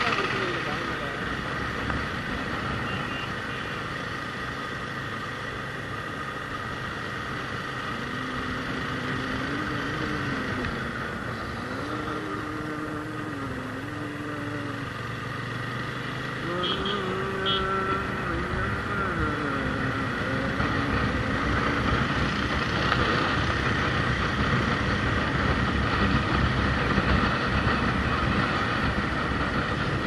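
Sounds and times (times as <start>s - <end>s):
motorcycle engine running: 0.0s - 30.0s
wind rushing over microphone: 17.2s - 30.0s.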